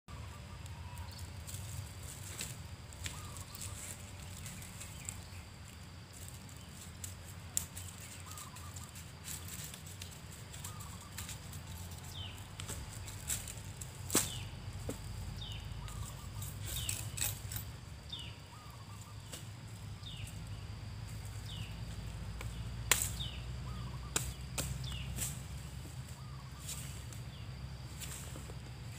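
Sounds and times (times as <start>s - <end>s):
machete cutting palm stalks: 12.6s - 15.0s, 22.4s - 23.4s, 24.1s - 26.0s.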